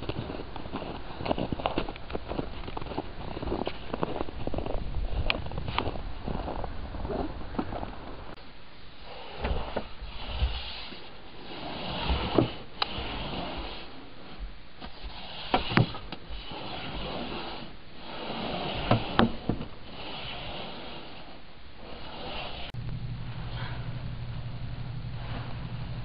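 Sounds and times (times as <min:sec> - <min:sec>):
snow shovel scraping snow: 0:09.0 - 0:22.8.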